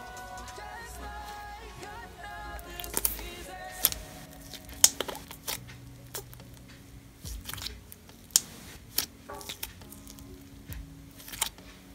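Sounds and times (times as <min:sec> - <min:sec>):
slime squishing: 0:02.8 - 0:10.4, 0:11.1 - 0:11.9.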